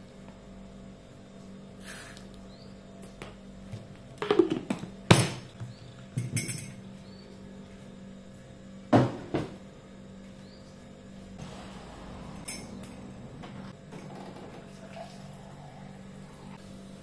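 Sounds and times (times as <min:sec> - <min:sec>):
kitchen utensils knocking and clinking: 0:12.1 - 0:14.7.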